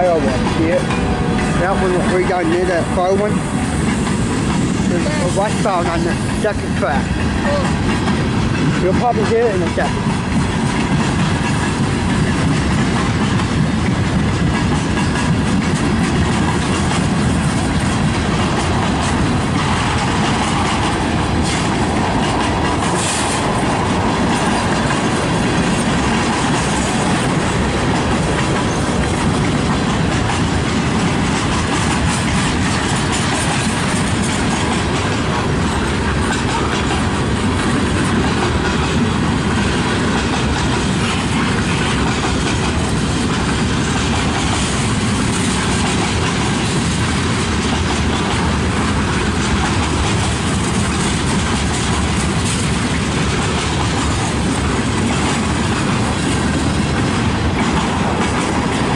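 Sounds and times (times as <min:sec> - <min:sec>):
train wheels clattering on rails: 0:00.0 - 0:58.9.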